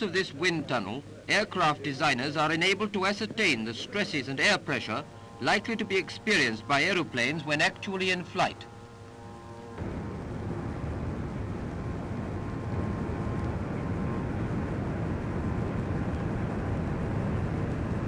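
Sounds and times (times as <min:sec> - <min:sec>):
wind tunnel fan rush of air: 0:03.6 - 0:18.0.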